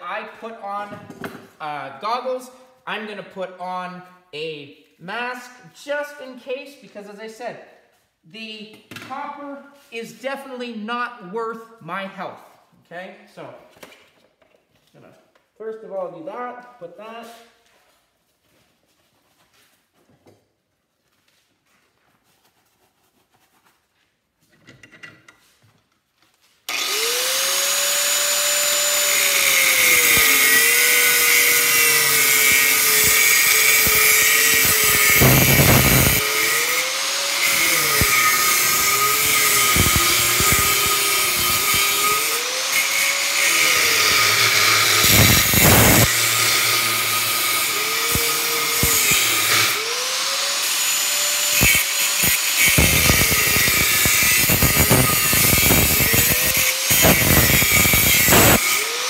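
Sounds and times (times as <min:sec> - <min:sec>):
angle grinder cutting metal: 0:26.7 - 0:59.0.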